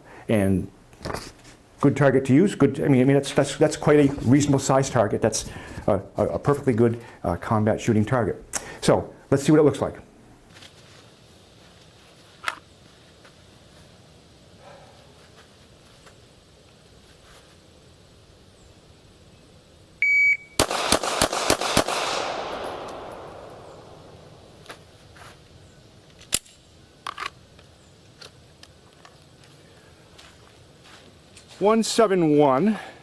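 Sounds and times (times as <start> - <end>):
shot timer beep: 20.0 - 20.6
handgun shots with echo: 20.6 - 24.2.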